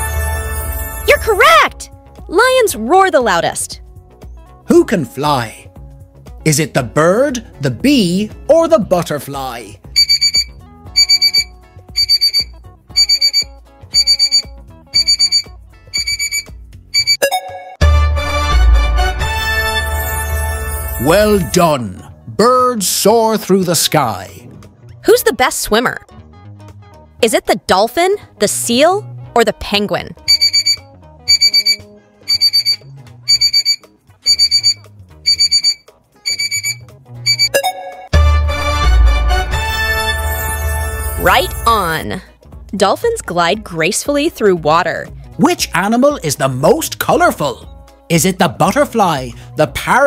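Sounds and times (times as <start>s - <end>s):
loud music: 0.0s - 2.6s, 17.8s - 22.1s, 38.1s - 42.2s
soft background music: 0.0s - 50.0s
electronic timer beeping: 10.0s - 17.5s, 30.3s - 37.8s.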